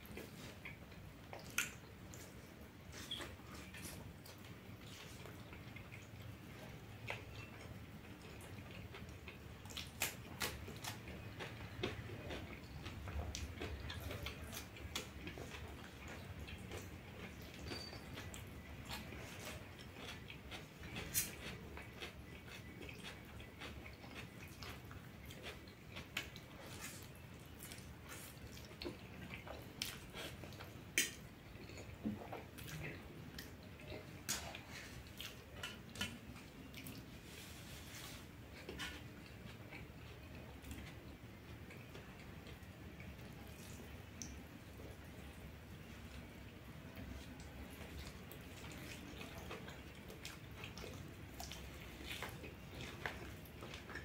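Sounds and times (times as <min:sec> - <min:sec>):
man chewing and slurping: 0:13.4 - 0:30.8.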